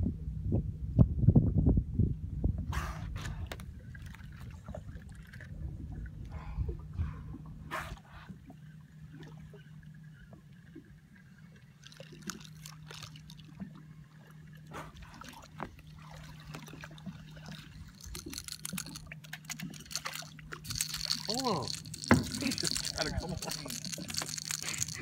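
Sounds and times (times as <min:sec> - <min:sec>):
low steady hum: 0:00.0 - 0:25.0
water lapping and splashing: 0:02.7 - 0:25.0.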